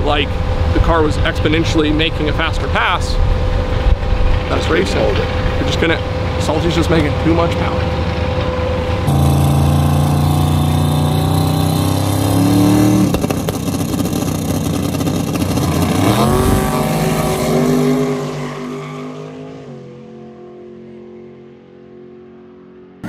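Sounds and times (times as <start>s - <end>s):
drag car engines revving: 0.0s - 21.9s
drag cars launching: 8.9s - 19.6s.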